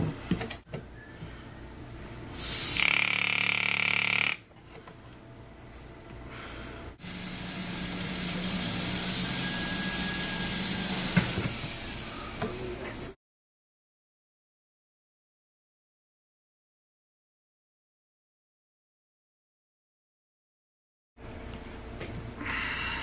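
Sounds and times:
power handpiece buzzing: 2.4s - 4.5s.

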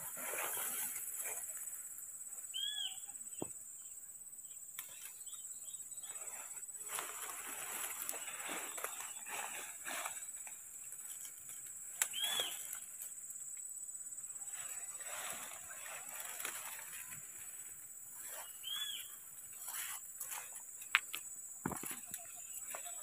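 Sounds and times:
leaves and fern stems rustling: 0.0s - 3.1s, 4.7s - 23.0s
short high calls: 2.5s - 3.2s, 12.0s - 12.8s, 18.2s - 19.9s.

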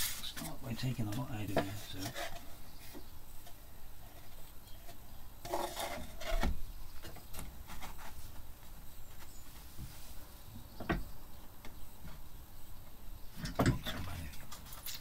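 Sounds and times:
wooden panels scraping and knocking: 0.0s - 8.5s, 13.3s - 15.0s.

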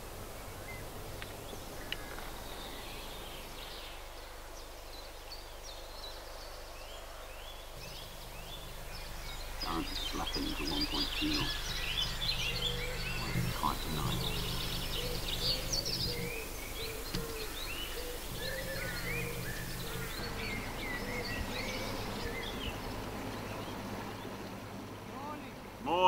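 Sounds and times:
low diesel engine hum: 0.0s - 4.3s, 7.7s - 26.0s
songbirds chirping and whistling: 0.0s - 26.0s
repeated low bird note: 7.8s - 26.0s.

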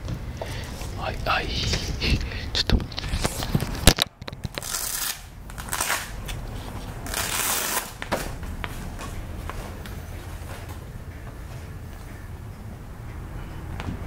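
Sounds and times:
packaging rustling: 3.0s - 6.2s.

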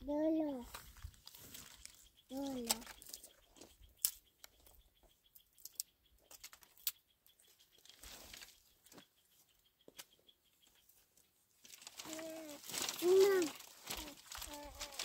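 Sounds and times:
footsteps on dry grass and stones: 0.6s - 4.2s, 7.8s - 9.1s, 11.6s - 15.0s.

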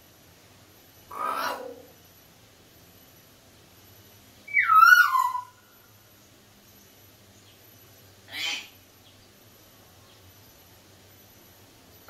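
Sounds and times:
parrot whistle-like call: 4.5s - 5.6s.

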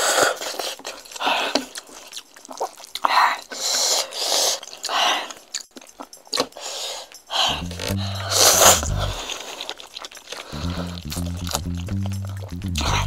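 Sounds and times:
wet chewing and mouth noises: 0.0s - 13.0s
music: 5.5s - 9.5s, 10.3s - 13.0s
breathy huffs: 6.6s - 11.0s.

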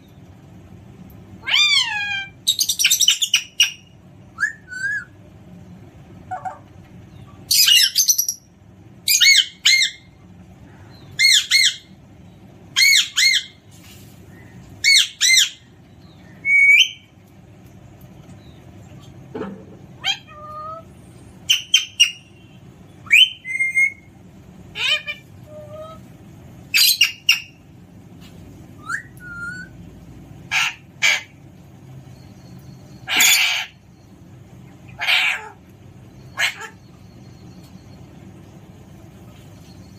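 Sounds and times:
parrot squawking: 1.4s - 5.1s, 6.3s - 6.7s, 7.5s - 10.1s, 11.2s - 12.0s, 12.8s - 13.6s, 14.8s - 15.7s, 20.0s - 22.3s, 24.7s - 26.0s, 26.7s - 27.6s, 30.5s - 31.4s, 33.0s - 33.8s, 34.9s - 35.6s, 36.3s - 36.9s.

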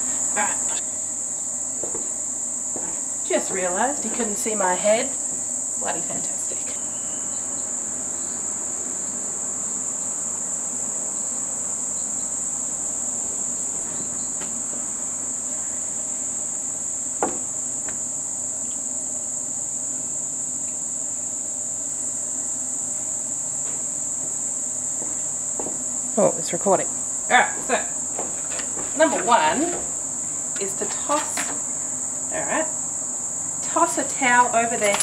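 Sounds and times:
insects chirring: 0.0s - 35.0s.

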